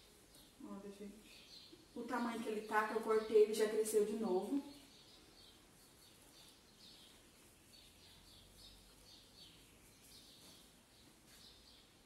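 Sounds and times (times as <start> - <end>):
bird chirping faintly: 0.0 - 12.0.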